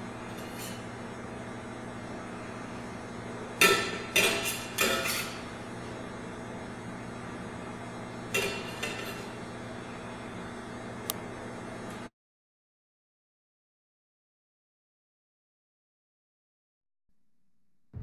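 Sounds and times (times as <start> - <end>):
steady low hum: 0.0 - 12.1.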